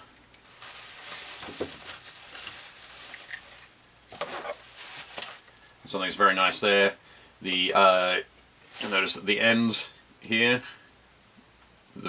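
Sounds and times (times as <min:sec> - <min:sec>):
bubble wrap rustling and crackling: 0:00.4 - 0:05.8, 0:08.6 - 0:09.4.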